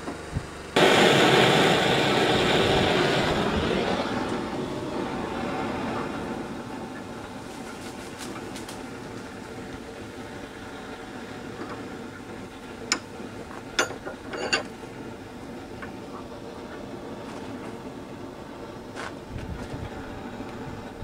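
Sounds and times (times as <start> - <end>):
blowtorch flame burning: 0.3 - 21.0.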